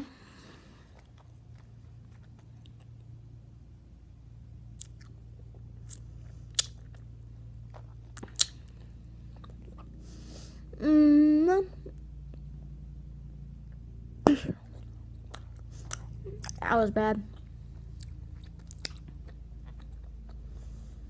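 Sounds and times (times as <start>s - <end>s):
gum chewing wet clicks and smacks: 0.9s - 3.2s, 4.7s - 10.0s, 14.6s - 16.7s, 17.3s - 20.6s.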